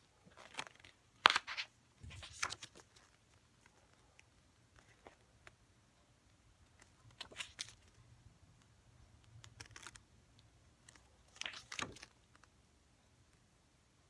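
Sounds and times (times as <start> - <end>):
pages being turned: 0.4 - 3.8, 6.8 - 8.0, 9.4 - 10.0, 10.8 - 12.5.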